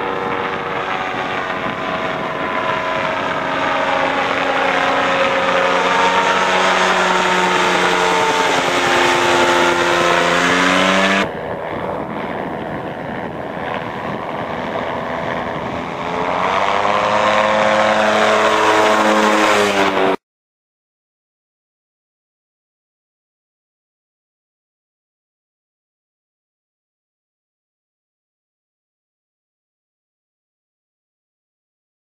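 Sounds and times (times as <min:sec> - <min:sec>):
gyroplane engine droning: 0:00.0 - 0:20.2.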